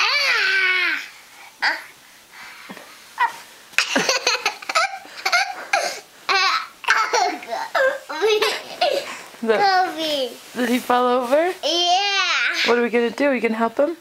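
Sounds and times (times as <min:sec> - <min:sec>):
young children laughing: 0:03.8 - 0:09.8.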